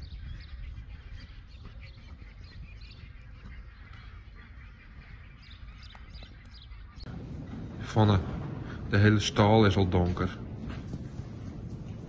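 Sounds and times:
horse hoofbeats trotting on sand: 0:00.0 - 0:08.6, 0:09.4 - 0:12.0
birds calling: 0:00.0 - 0:12.0
steady low rumble: 0:02.7 - 0:12.0.

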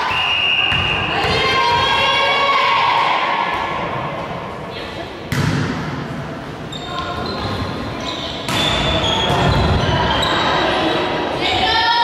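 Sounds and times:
voices echoing in hall: 0:00.0 - 0:12.0
volleyball being struck: 0:05.3 - 0:06.0.

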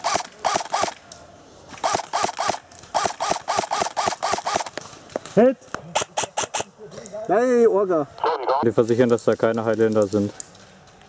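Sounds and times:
airsoft rifle rapid shots: 0:00.0 - 0:01.0, 0:01.8 - 0:04.8, 0:05.9 - 0:06.7.

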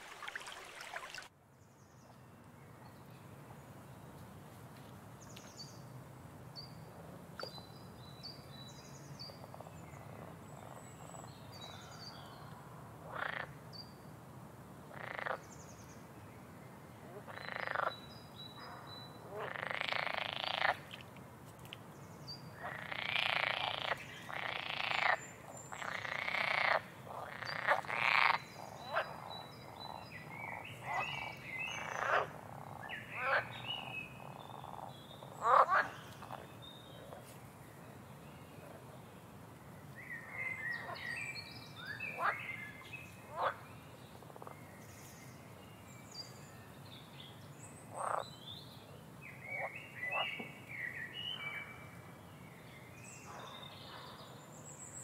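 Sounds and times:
tap water trickling: 0:00.0 - 0:01.3.

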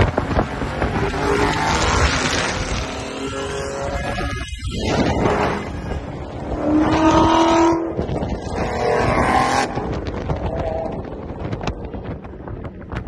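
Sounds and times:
car engine and road rumble: 0:00.0 - 0:13.0
wind noise: 0:00.0 - 0:13.0.

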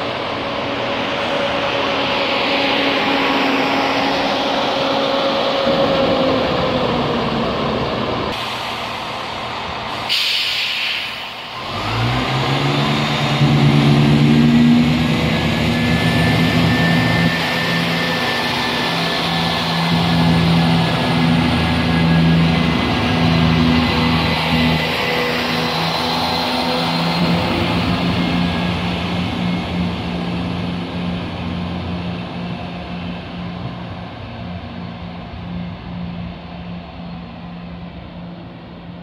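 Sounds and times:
train diesel engines: 0:00.0 - 0:39.0
air hiss: 0:09.9 - 0:11.6.

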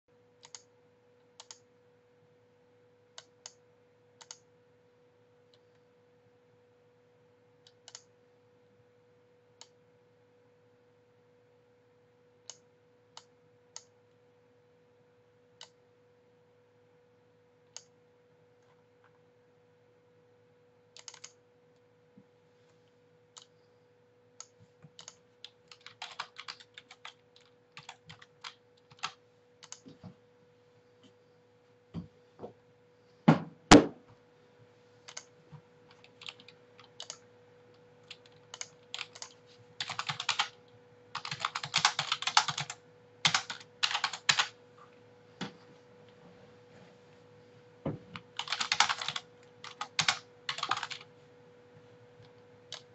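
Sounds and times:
faint electrical hum: 0:00.1 - 0:52.9
computer mouse clicks: 0:00.4 - 0:00.7, 0:01.4 - 0:01.6, 0:04.2 - 0:04.5, 0:07.6 - 0:08.1, 0:17.7 - 0:18.0, 0:21.0 - 0:21.4, 0:24.4 - 0:30.0, 0:35.1 - 0:35.3, 0:35.9 - 0:37.2, 0:38.1 - 0:40.5
keyboard typing: 0:00.4 - 0:00.7, 0:20.9 - 0:21.4, 0:24.4 - 0:30.0, 0:35.1 - 0:37.3, 0:38.0 - 0:44.6, 0:48.2 - 0:51.1.

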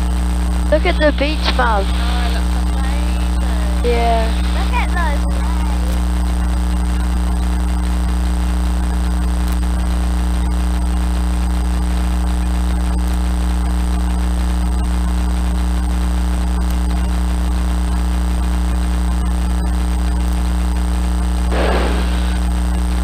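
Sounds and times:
light aircraft engine droning: 0:00.8 - 0:05.9.

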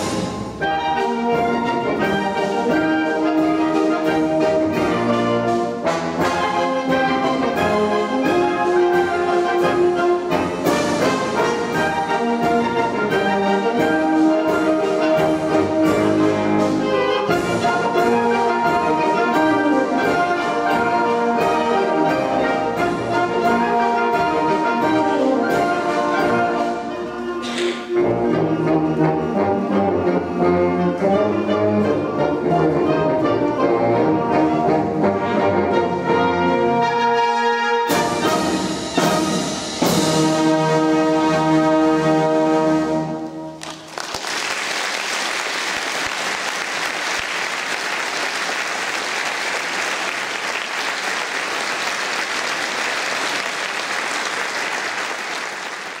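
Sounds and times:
wind orchestra with brass playing: 0:00.0 - 0:44.1
audience applause: 0:43.6 - 0:56.0.

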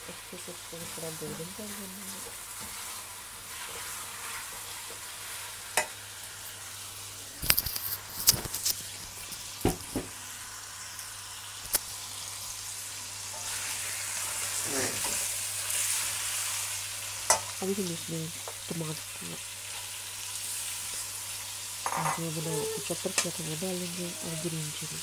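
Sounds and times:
chicken and onions sizzling in a pot: 0:00.0 - 0:25.0
spatula knocking and scraping pot: 0:21.9 - 0:22.3.

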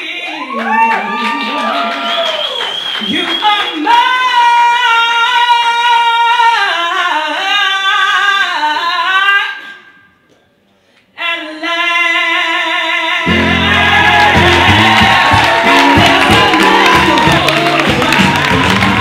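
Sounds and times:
woman singing: 0:03.1 - 0:09.8, 0:11.2 - 0:19.0.

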